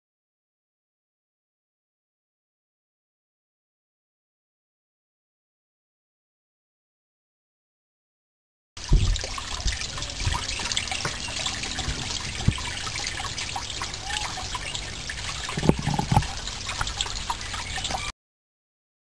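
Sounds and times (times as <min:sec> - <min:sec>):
water trickling in a pond: 0:08.8 - 0:18.1.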